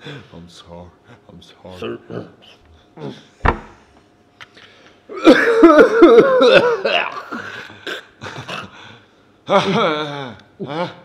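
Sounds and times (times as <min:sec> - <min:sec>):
thump: 0:03.4 - 0:03.8.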